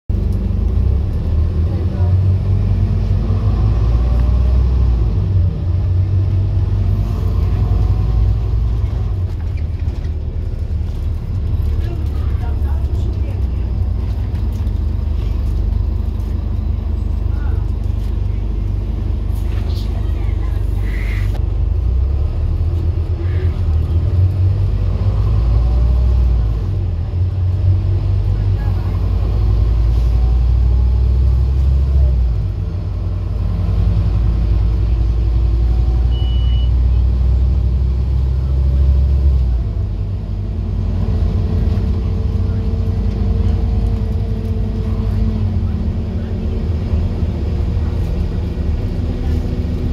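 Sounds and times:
bus diesel engine droning: 0:00.1 - 0:49.9.

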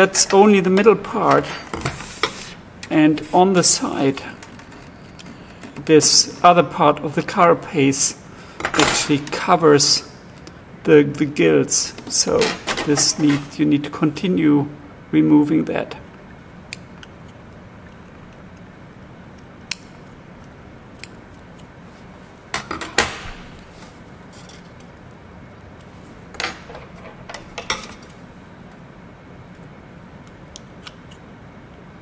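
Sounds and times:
scissors snipping shell: 0:19.7 - 0:21.7.

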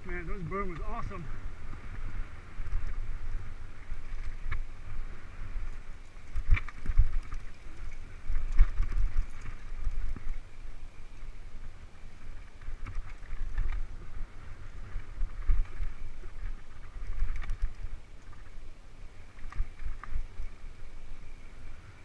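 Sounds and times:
wind buffeting microphone: 0:00.0 - 0:22.0
bike rattles and knocks: 0:06.2 - 0:10.4.

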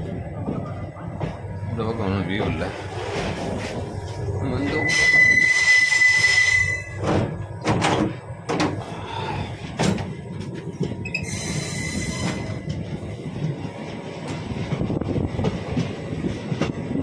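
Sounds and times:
low train rumble: 0:00.0 - 0:17.0
train wheel squeal: 0:04.6 - 0:07.1, 0:11.0 - 0:12.8.

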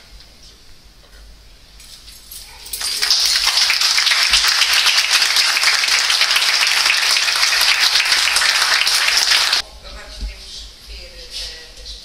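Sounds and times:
people applauding: 0:02.7 - 0:09.6.

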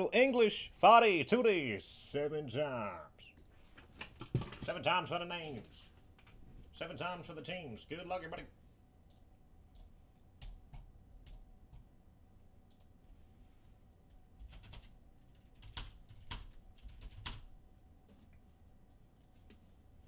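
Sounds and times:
computer mouse clicking: 0:09.0 - 0:11.9, 0:12.6 - 0:13.0.

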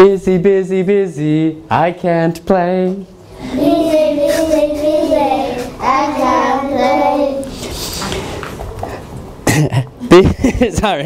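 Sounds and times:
children singing: 0:03.3 - 0:07.8.

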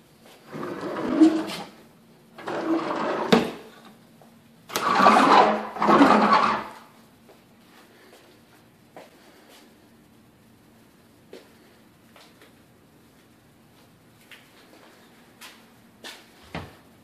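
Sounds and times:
wooden drawers scraping: 0:00.4 - 0:01.8, 0:02.4 - 0:04.0, 0:04.7 - 0:06.8.

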